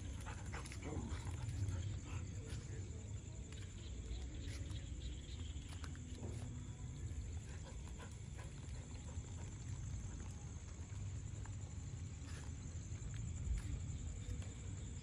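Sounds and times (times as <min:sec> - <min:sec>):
dogs vocalizing while playing: 0:00.0 - 0:02.6, 0:07.2 - 0:10.8.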